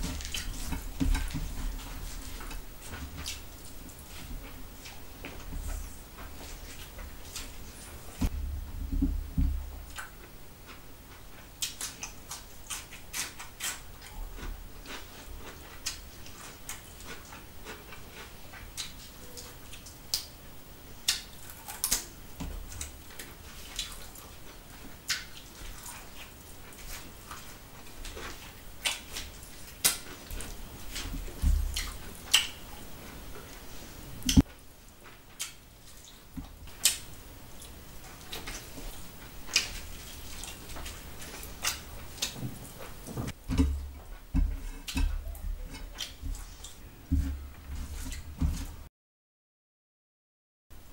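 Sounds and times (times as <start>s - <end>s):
dull low thumps: 8.2s - 9.9s
wet chewing and lip-smacking: 9.8s - 20.3s, 22.7s - 33.6s, 35.1s - 43.0s, 44.0s - 46.8s.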